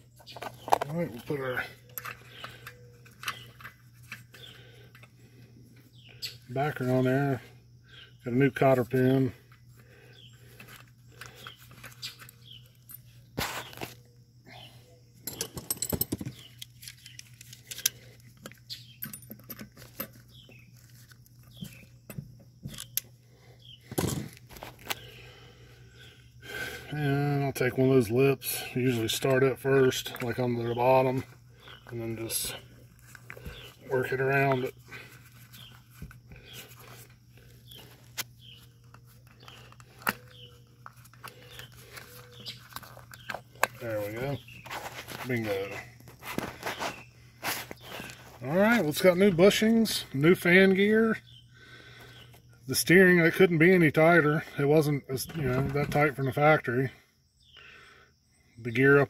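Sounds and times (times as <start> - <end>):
pliers clicking and scraping metal: 1.8 - 5.1, 15.2 - 20.3.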